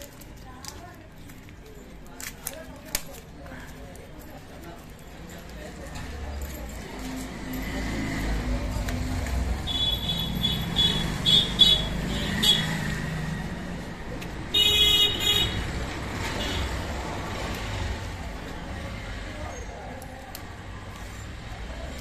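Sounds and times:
traffic rumble: 0.0 - 22.0
vehicle horns tooting: 9.6 - 12.9, 14.5 - 16.8.

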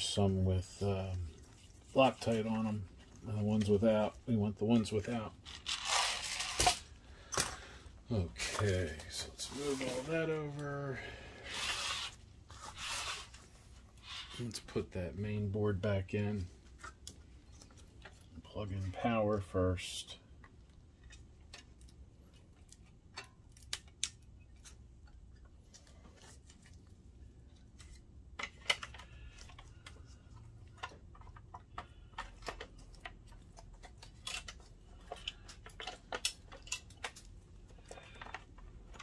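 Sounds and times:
plastic and metal parts clicking: 27.8 - 39.0.

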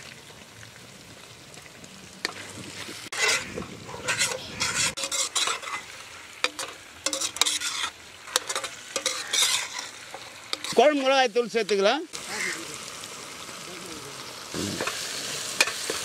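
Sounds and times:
food sizzling in a pan: 0.0 - 16.0
metal spatula scraping a pan: 3.1 - 11.8.

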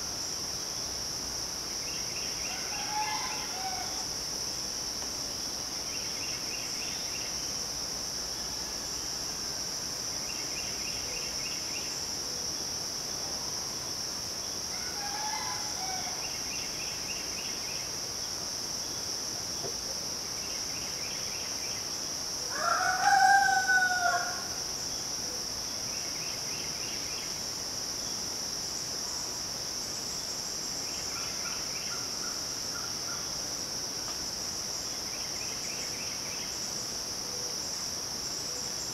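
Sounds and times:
insects droning: 0.0 - 38.9
rooster crowing: 2.5 - 4.0, 14.7 - 16.2, 22.5 - 24.6.

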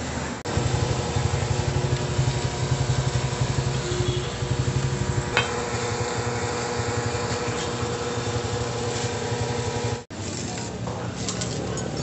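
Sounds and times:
small engine idling: 0.5 - 10.1.

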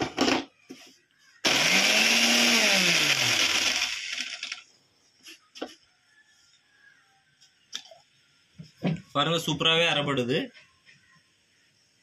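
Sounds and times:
mixer grinder motor whirring: 1.4 - 4.7.

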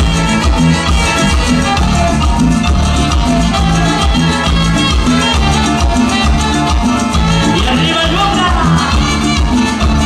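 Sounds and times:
live band dance music: 0.0 - 10.0.

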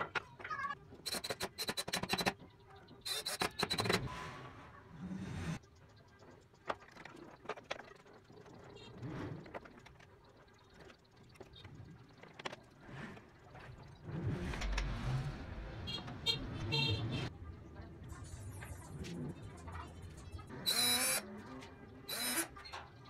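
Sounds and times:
wooden parts clicking and knocking: 0.0 - 4.1, 6.2 - 8.8, 9.4 - 13.8.

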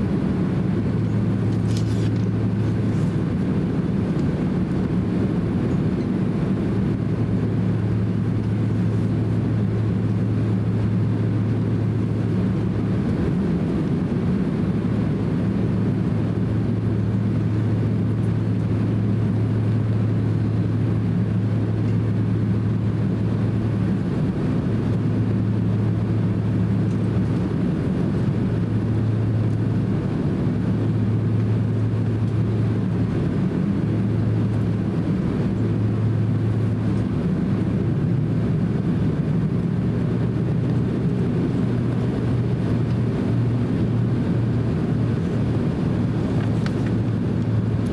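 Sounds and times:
airliner engine hum in cabin: 0.0 - 47.9.

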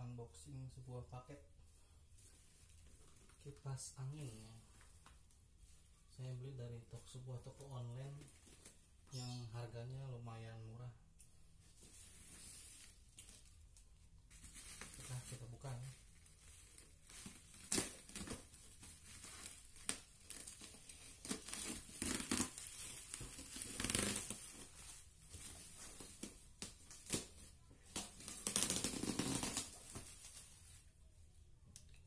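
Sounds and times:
bubble wrap crinkling and tearing: 11.8 - 30.9.

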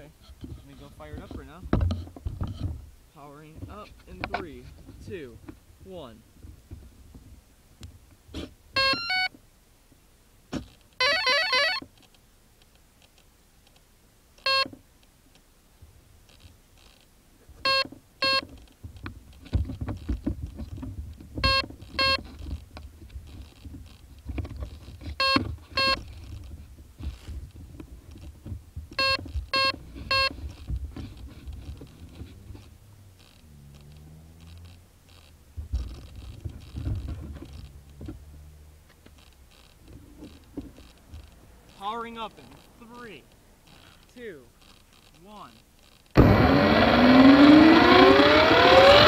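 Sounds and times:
electronic beeps through motor: 8.8 - 9.3, 11.0 - 11.8, 14.5 - 14.7, 17.7 - 18.4, 21.4 - 22.2, 25.2 - 26.0, 29.0 - 30.4, 46.2 - 49.0
rising startup tune: 11.0 - 11.8, 46.2 - 49.0.

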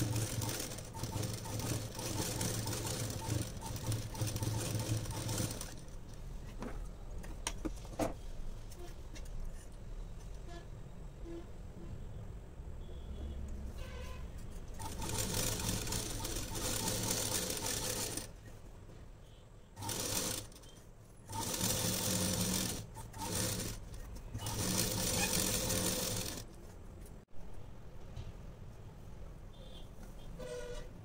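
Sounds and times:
sewing machine stitching: 0.0 - 6.0, 14.8 - 18.4, 19.8 - 26.5.

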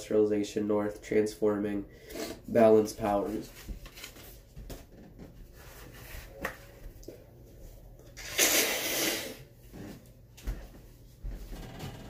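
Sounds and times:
person blowing nose: 8.2 - 9.5.

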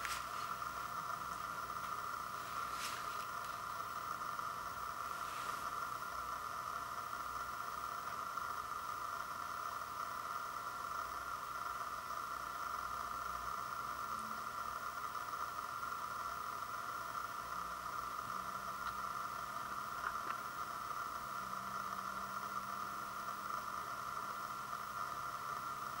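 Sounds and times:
steady background hiss: 0.0 - 26.0
faint ticks: 18.8 - 19.0.

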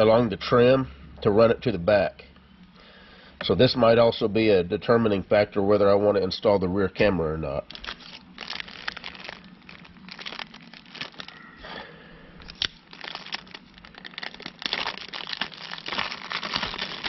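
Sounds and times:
plastic bag crinkling: 7.6 - 17.0.

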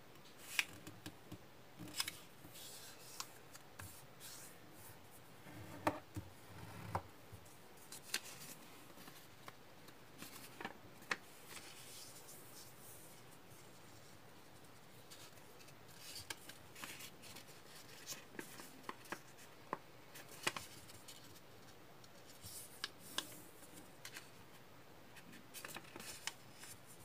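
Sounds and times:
paper rustling: 15.0 - 21.4, 25.2 - 27.0
paper crinkling as folded: 25.5 - 26.8.

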